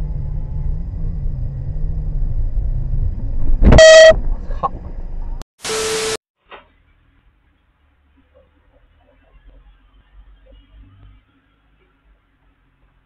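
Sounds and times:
engine and traffic rumble: 0:00.0 - 0:05.4, 0:06.8 - 0:13.0
car horn blast: 0:03.7 - 0:04.2.

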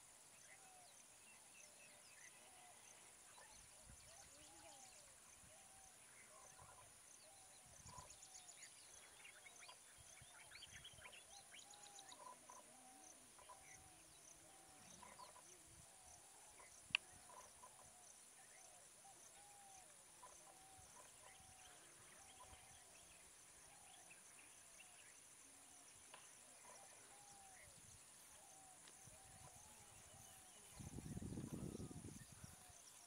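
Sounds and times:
birds calling and chirping: 0:01.3 - 0:33.0.

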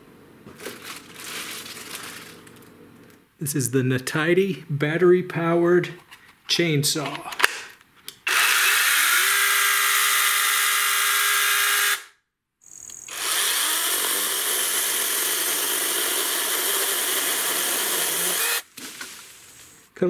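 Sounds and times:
mini chainsaw motor whine: 0:08.3 - 0:12.1, 0:12.8 - 0:18.7
chainsaw cutting tree branch: 0:13.1 - 0:19.8.

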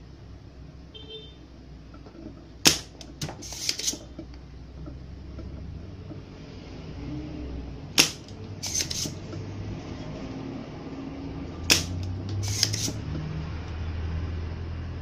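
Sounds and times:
scratchy rattle of pump: 0:02.2 - 0:04.2, 0:08.1 - 0:09.2, 0:11.7 - 0:13.1
desoldering pump snap: 0:02.6 - 0:04.0, 0:07.9 - 0:09.2, 0:11.6 - 0:13.0.

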